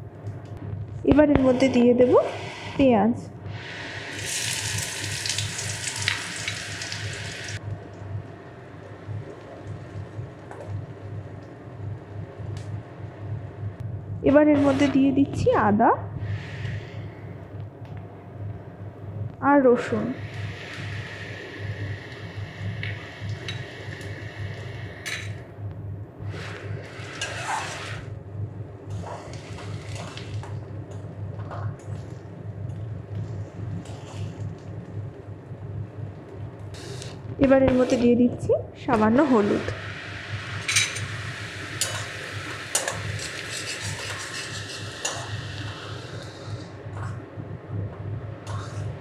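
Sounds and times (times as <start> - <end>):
steady low hum: 0.0 - 49.0
food sizzling in oil: 4.1 - 7.6
metal spatula scraping pan: 27.2 - 28.0.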